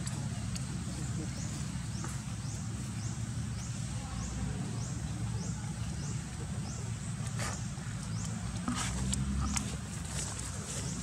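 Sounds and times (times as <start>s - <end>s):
rustles: 6.0s - 11.0s.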